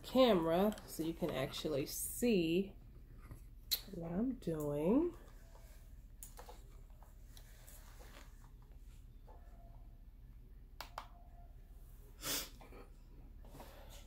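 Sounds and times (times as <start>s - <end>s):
low room hum: 0.0s - 14.0s
short huff of breath: 12.2s - 12.6s.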